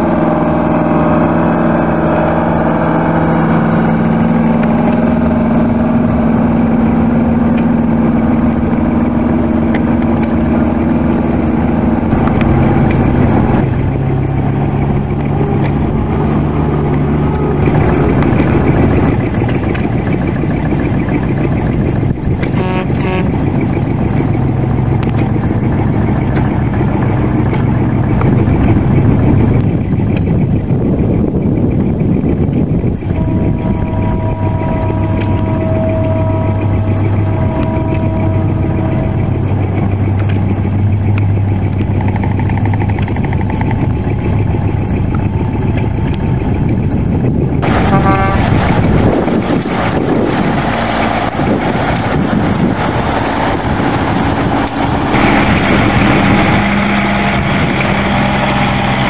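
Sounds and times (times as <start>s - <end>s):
truck horn toots: 0.0s - 14.7s, 15.4s - 25.4s, 32.8s - 41.2s, 47.6s - 59.0s
truck engines running: 0.0s - 59.0s.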